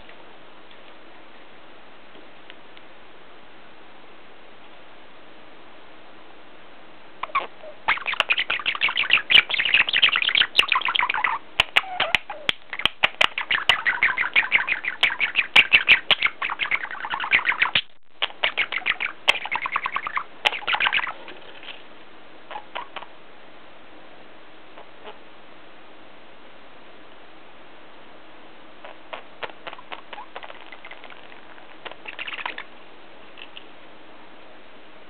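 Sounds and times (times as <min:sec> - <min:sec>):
budgerigar chattering and warbling: 0:07.2 - 0:21.8, 0:22.5 - 0:23.1, 0:28.8 - 0:32.7.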